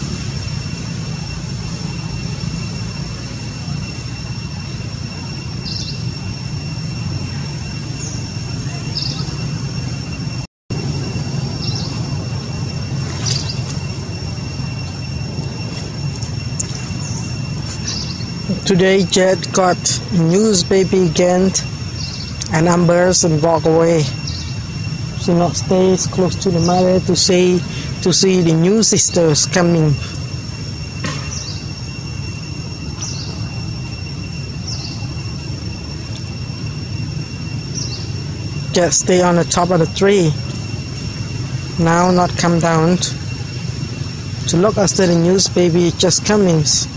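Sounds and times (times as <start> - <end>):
low rumble: 0.0 - 28.6
high-pitched tones: 0.0 - 46.9
thin high whine: 0.0 - 46.9.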